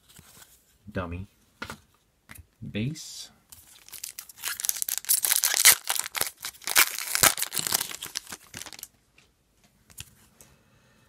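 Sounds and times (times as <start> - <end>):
foil wrapper crinkling: 3.6 - 8.9.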